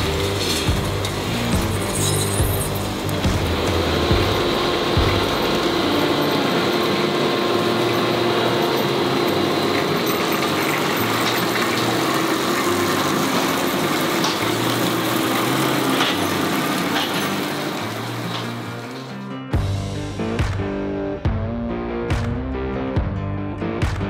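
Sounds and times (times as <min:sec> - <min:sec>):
tractor and harvesting machinery: 0:00.0 - 0:19.6.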